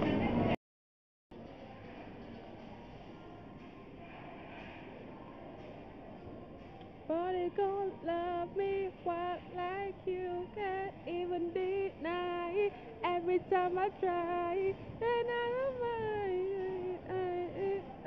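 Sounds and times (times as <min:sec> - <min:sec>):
woman singing: 0:07.1 - 0:18.0.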